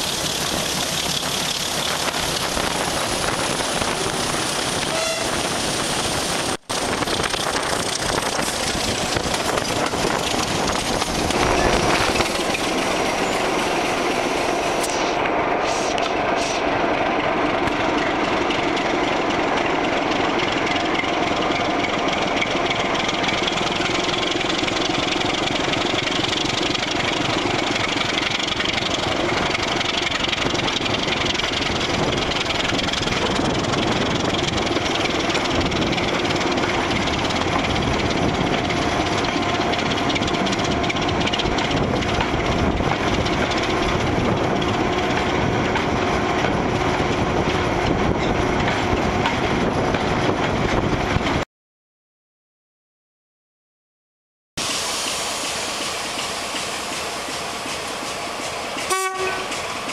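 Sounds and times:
rushing air: 0:00.0 - 0:17.0
diesel locomotive engine running: 0:00.0 - 0:51.4, 0:54.6 - 0:59.9
train wheels on rails: 0:00.0 - 0:51.4, 0:54.6 - 0:59.9.

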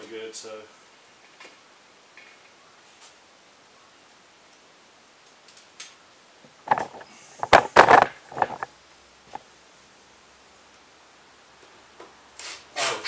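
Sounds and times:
tools knocking and rattling: 0:06.7 - 0:08.7.

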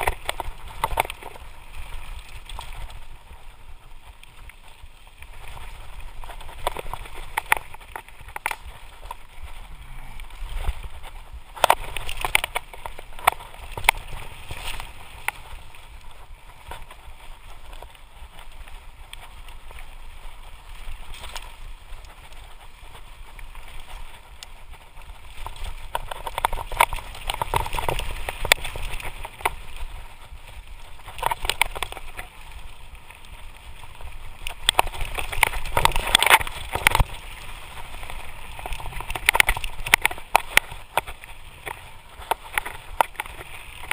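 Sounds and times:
bike clattering on stones: 0:00.0 - 0:03.0, 0:10.4 - 0:17.0, 0:25.3 - 0:29.9, 0:30.8 - 0:32.6, 0:33.8 - 0:43.9
bike tyres rumbling over ground: 0:00.0 - 0:43.9
rushing wind: 0:00.0 - 0:43.9.

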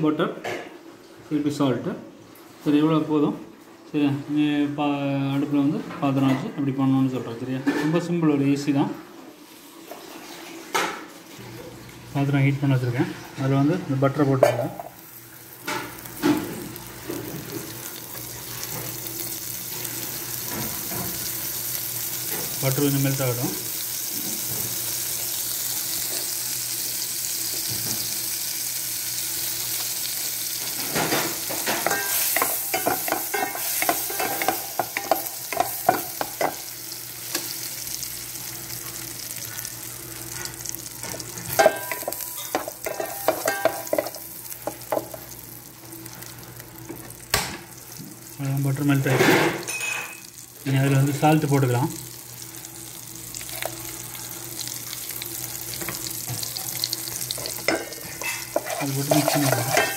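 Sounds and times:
butter sizzling in a pan: 0:13.4 - 0:59.9
wooden spoon scraping a pan: 0:57.4 - 0:59.9.

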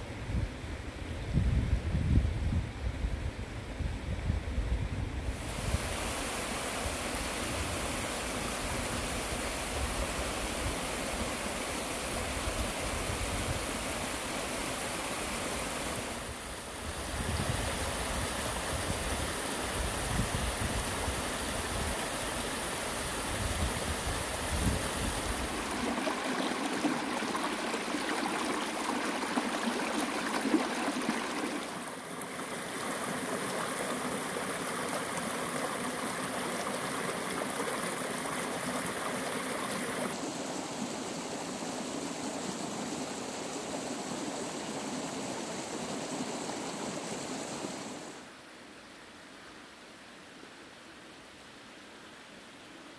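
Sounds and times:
wind gusts on microphone: 0:00.0 - 0:11.3, 0:12.0 - 0:14.2, 0:15.8 - 0:31.8
stream rushing over rocks: 0:05.3 - 0:48.4
small waterfall: 0:05.3 - 0:52.9.

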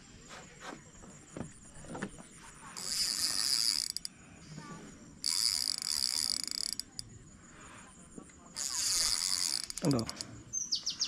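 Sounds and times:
fishing reel drag buzzing: 0:02.8 - 0:04.1, 0:05.2 - 0:07.1, 0:08.5 - 0:10.4.

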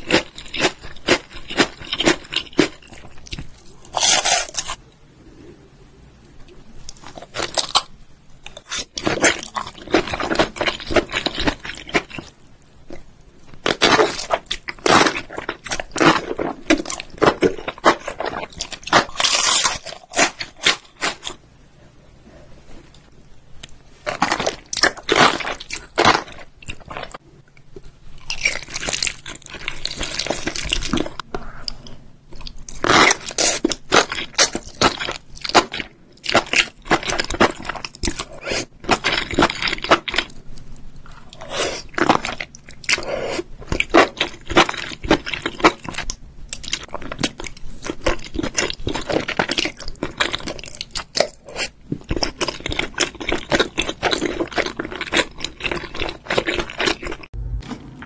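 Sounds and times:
wet chewing crunches: 0:06.9 - 0:12.3, 0:28.2 - 0:40.4, 0:41.1 - 0:58.0.

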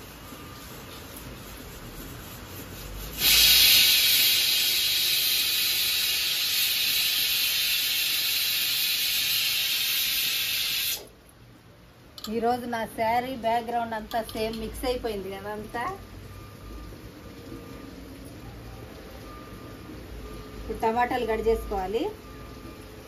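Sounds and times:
pressure cooker whistle hissing: 0:03.2 - 0:11.1.

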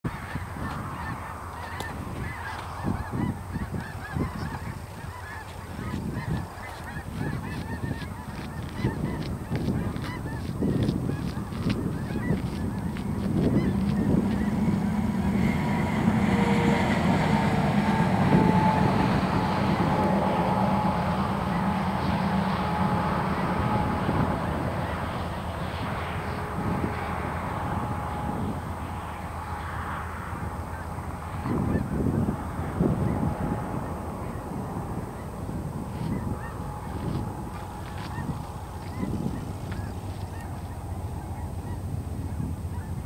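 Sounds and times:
diesel locomotive rumble: 0:00.0 - 0:43.0
flock of birds calling: 0:00.1 - 0:22.1, 0:32.8 - 0:43.0.

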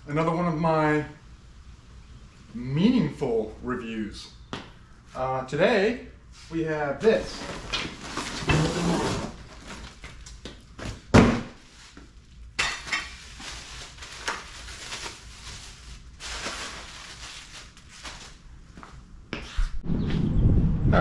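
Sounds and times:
cardboard box rustling and scraping: 0:07.3 - 0:10.0.

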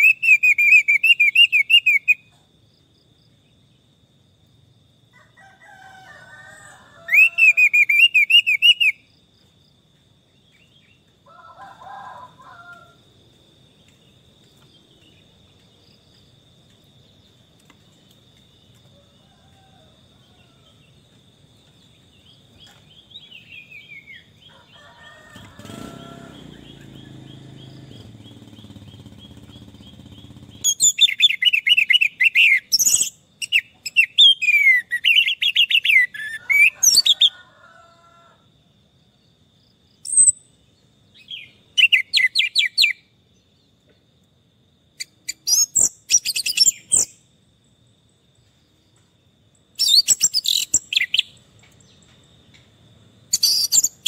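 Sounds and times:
warbling bird calls: 0:00.0 - 0:02.3, 0:06.5 - 0:09.1, 0:22.1 - 0:37.5, 0:53.3 - 0:54.0
low drawn-out bird call: 0:06.6 - 0:09.1, 0:23.2 - 0:37.4.

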